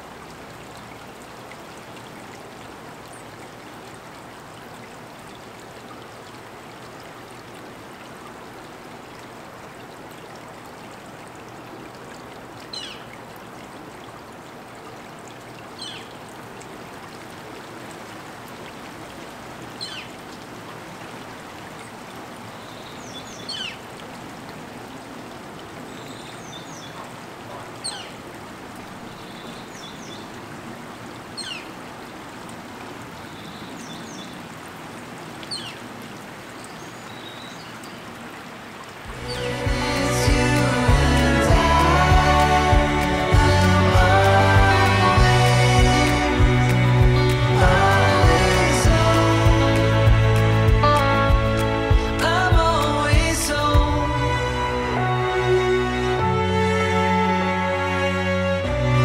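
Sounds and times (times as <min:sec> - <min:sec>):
steady rain falling: 0:00.0 - 0:59.0
faint bird chirps: 0:15.8 - 0:16.2, 0:27.8 - 0:28.2.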